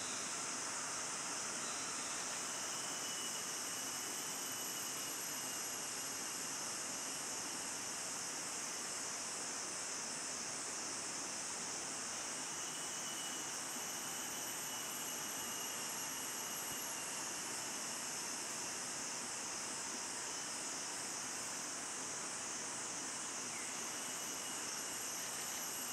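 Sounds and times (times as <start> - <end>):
shrill insect chorus: 0.0 - 25.9.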